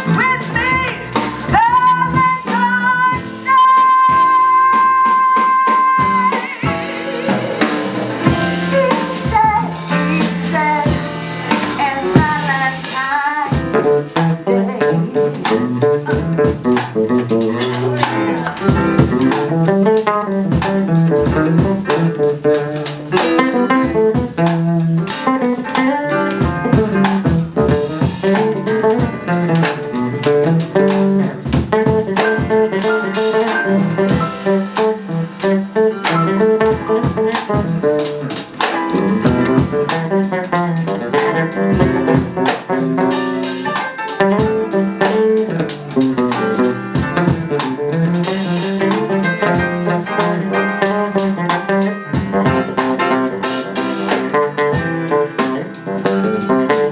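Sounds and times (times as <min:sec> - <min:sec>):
drums beat: 0:00.0 - 0:56.9
live band playing blues: 0:00.0 - 0:56.9.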